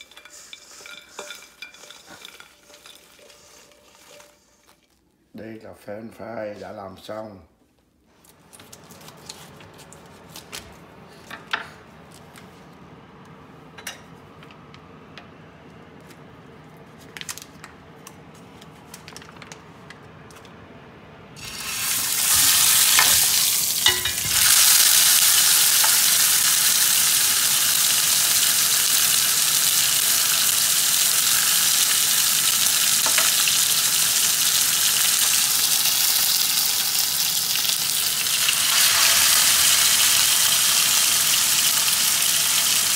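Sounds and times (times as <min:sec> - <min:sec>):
steak sizzling on a grill pan: 0:21.4 - 0:42.9.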